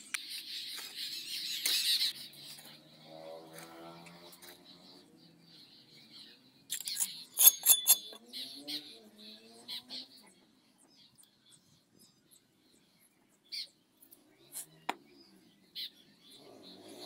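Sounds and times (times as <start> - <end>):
trowel scraping brick and mortar: 6.7 - 8.2.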